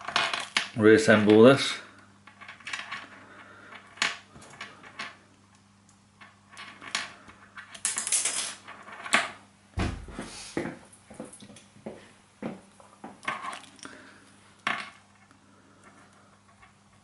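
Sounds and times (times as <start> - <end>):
small parts clicking and tapping: 2.2 - 9.4
low thump: 9.8 - 10.2.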